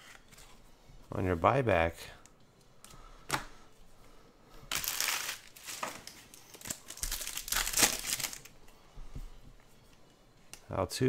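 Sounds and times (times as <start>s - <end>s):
wrapper tearing and crinkling: 4.7s - 8.5s.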